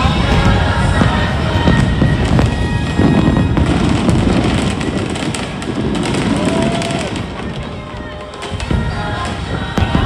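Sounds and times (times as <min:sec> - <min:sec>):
fireworks crackling pops: 0:00.0 - 0:10.0
low booms of shell bursts: 0:00.2 - 0:07.7.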